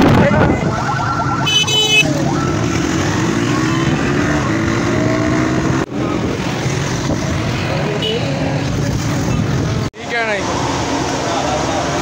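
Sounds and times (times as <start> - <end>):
wind on microphone: 0.0 - 1.2
road traffic: 0.0 - 12.0.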